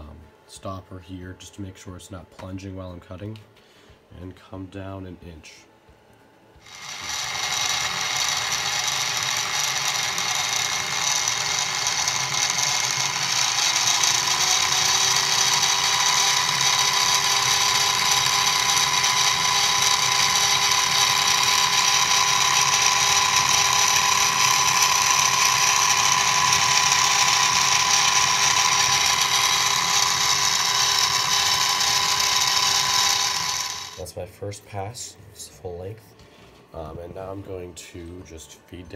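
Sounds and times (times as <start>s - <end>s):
cutter hissing through metal: 6.6s - 34.0s
milling spindle motor whine: 6.6s - 34.0s.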